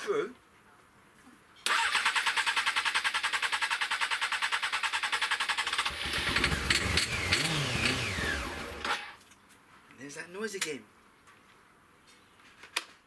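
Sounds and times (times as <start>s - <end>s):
motorcycle engine cranking on starter: 1.6s - 9.2s
engine sharp cracks: 1.7s - 9.2s.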